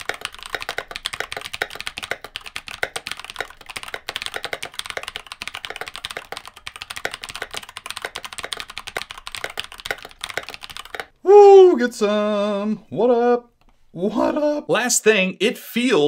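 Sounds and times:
mechanical keyboard typing: 0:00.0 - 0:11.2.

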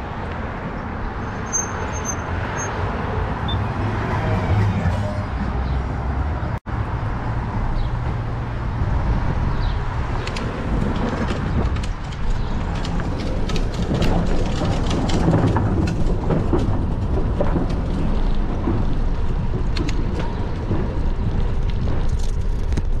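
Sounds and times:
wind rumbling on microphone: 0:06.4 - 0:23.0
bike rattling on cracked asphalt: 0:07.8 - 0:23.0.

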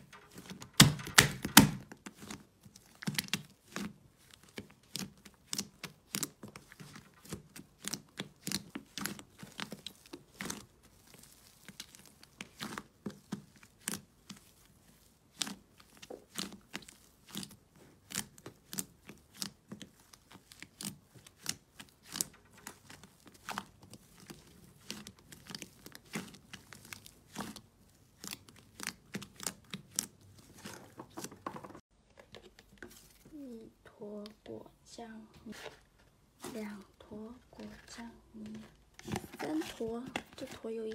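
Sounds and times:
slime crackling and popping: 0:00.0 - 0:30.9.

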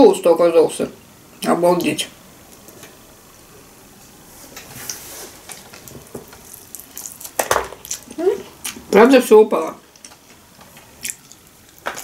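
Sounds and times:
wet chewing mouth noises: 0:10.0 - 0:11.8.

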